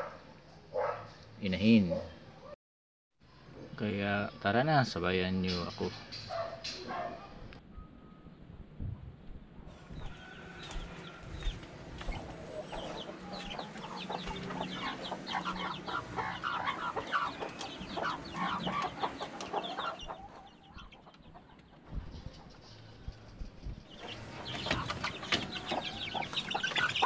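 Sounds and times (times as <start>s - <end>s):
chickens clucking and calling: 9.7s - 27.0s.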